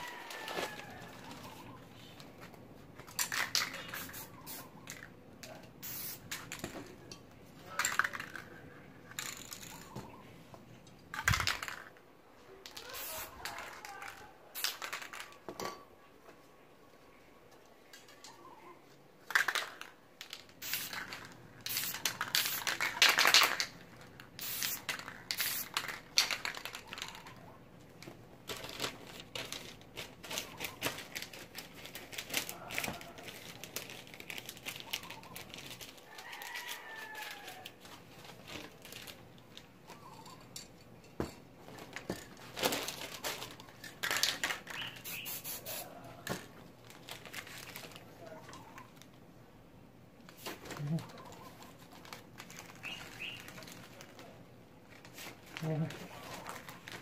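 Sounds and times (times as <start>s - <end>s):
paper crinkling and rustling: 0.0s - 3.0s, 28.0s - 40.0s, 41.6s - 45.0s, 46.3s - 49.2s, 50.2s - 57.0s
aerosol spray can hissing: 24.4s - 25.7s, 44.9s - 45.8s.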